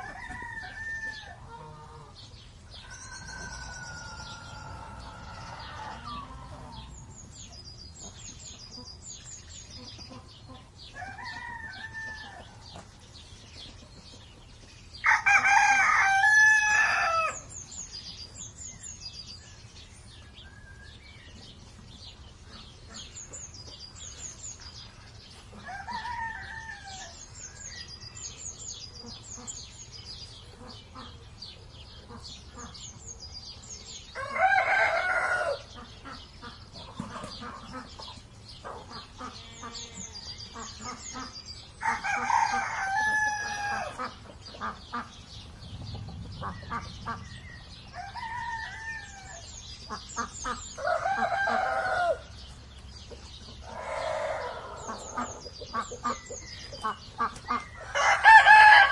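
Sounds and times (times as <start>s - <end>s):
rooster crowing: 0.0s - 1.8s, 2.8s - 6.9s, 11.0s - 12.4s, 15.0s - 17.4s, 25.6s - 27.2s, 34.2s - 35.7s, 41.8s - 44.0s, 47.9s - 49.6s, 50.8s - 52.3s, 53.7s - 55.1s, 57.9s - 58.9s
hen clucking: 0.0s - 9.0s, 9.7s - 13.0s, 34.6s - 52.3s, 53.0s - 58.9s
low farmyard background: 0.0s - 58.9s
small birds chirping: 0.0s - 58.9s.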